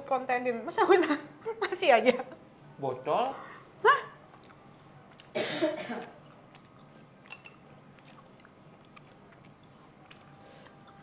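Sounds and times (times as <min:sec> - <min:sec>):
chewing: 0:04.2 - 0:05.4, 0:06.0 - 0:11.0.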